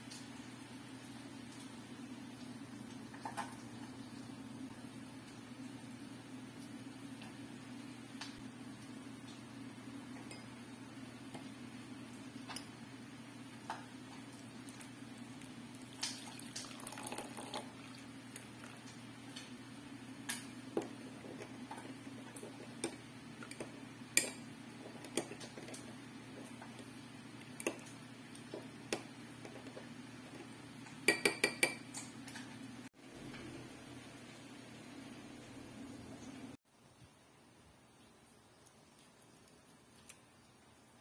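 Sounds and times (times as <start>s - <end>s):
liquid pouring into bowl: 14.3s - 18.9s
spoon tapping glass bowl: 31.0s - 31.8s.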